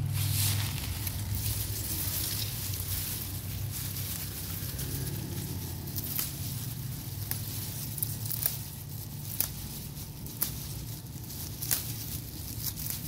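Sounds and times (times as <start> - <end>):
leaves rustling: 0.0 - 13.0
steady low hum: 0.0 - 13.0
stalks snapping and tearing: 0.2 - 13.0.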